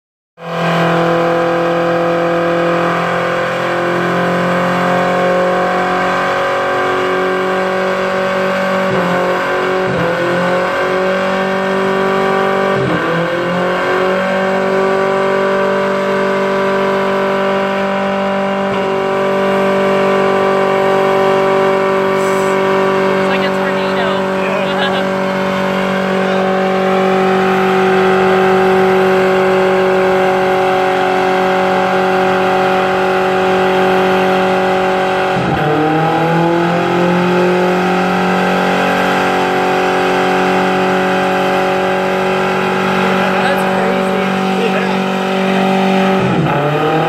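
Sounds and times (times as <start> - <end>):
engine revving high: 0.4 - 47.0.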